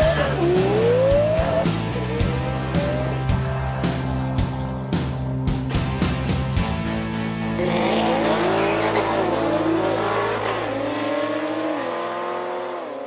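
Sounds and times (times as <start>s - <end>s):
car engines revving: 0.0s - 4.8s, 7.4s - 13.0s.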